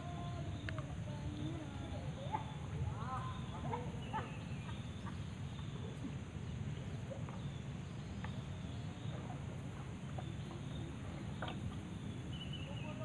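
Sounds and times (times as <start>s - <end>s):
birds calling: 0.0s - 13.0s
insects chirping: 0.0s - 13.0s.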